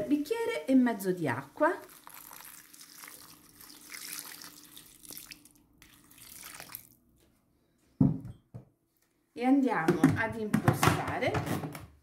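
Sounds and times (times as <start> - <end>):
water pouring into steel bowl: 1.8 - 7.0.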